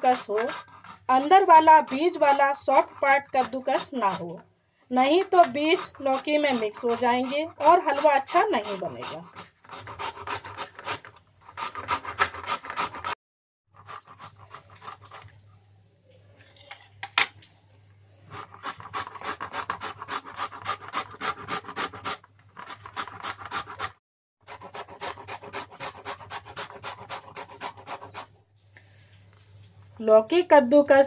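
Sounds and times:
gourd grating on a metal grater: 0.0 - 4.3, 5.0 - 13.2, 18.3 - 23.9.

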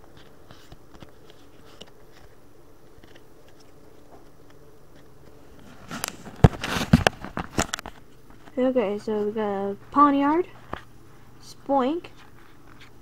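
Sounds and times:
cards and device rustling and knocking: 0.1 - 8.6.

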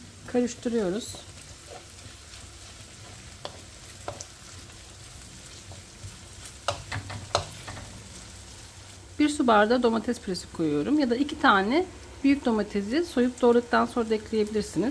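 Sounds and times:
food sizzling in a frying pan: 0.0 - 14.9
wooden spoon scraping a pan: 0.9 - 8.9.

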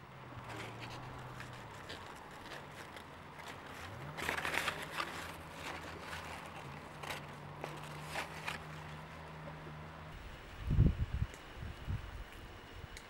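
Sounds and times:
steady low hum: 0.0 - 13.0
leaves and twigs rustling: 0.2 - 10.2.

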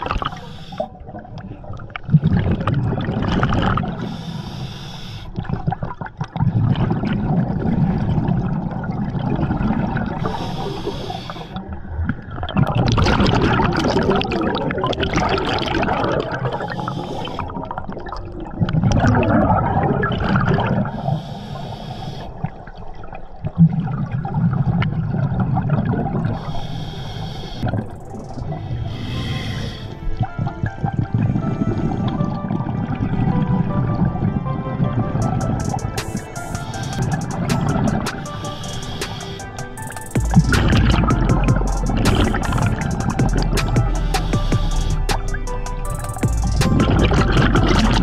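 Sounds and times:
exhaled bubbles gurgling: 0.0 - 4.4, 5.2 - 44.0, 46.5 - 48.0
regulator inhalation hiss: 0.3 - 0.9, 4.0 - 5.3, 10.2 - 11.6, 16.6 - 17.5, 21.0 - 22.3, 26.4 - 27.7, 28.5 - 30.0, 35.3 - 40.5, 41.5 - 46.7.

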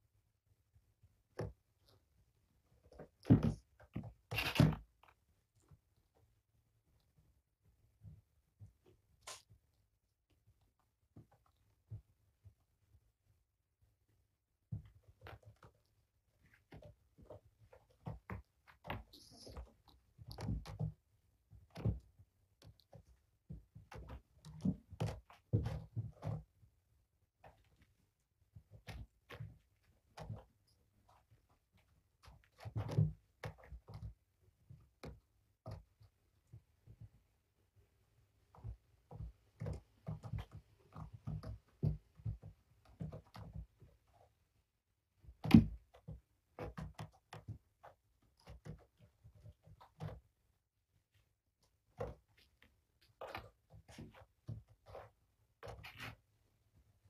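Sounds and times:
kittens' paws thumping and scrabbling: 14.7 - 26.7, 27.4 - 37.3, 38.3 - 44.4, 51.1 - 57.0.

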